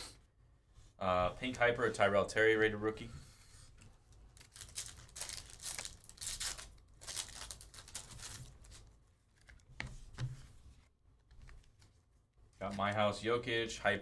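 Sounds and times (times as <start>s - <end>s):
card pack wrapper tearing: 4.4s - 8.9s.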